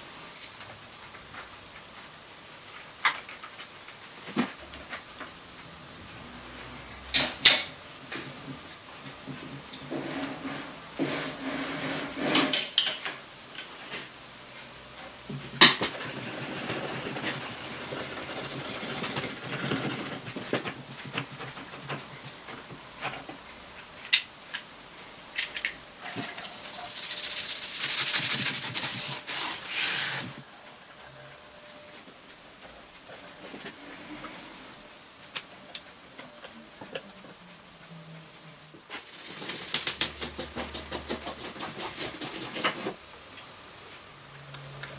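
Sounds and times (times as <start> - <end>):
steady hiss: 20.6 - 44.9
metal parts clinking and knocking: 25.3 - 26.9.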